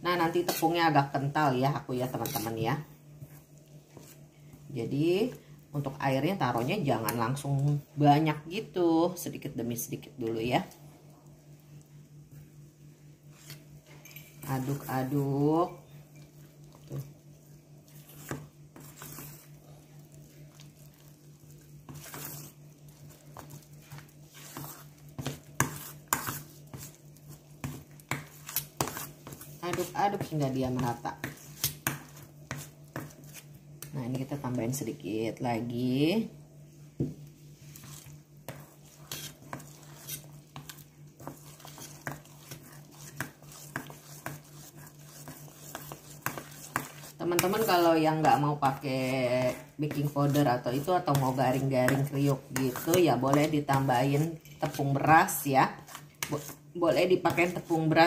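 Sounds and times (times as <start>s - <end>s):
steady low hum: 0.0s - 58.0s
spoon clinking against bowl: 14.0s - 14.4s
hand squelching batter: 14.4s - 35.0s, 37.2s - 58.0s.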